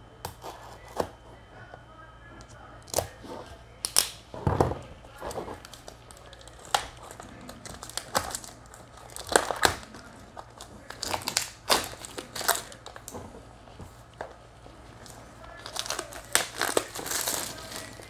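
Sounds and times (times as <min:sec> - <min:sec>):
packaging crinkling and tearing: 0:03.8 - 0:04.2, 0:05.1 - 0:13.2, 0:14.1 - 0:18.0.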